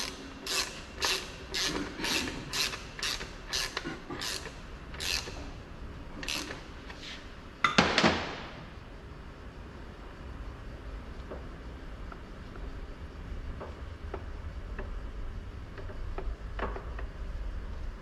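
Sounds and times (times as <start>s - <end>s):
ratchet wrench clicking: 0.0s - 5.4s, 6.2s - 7.0s.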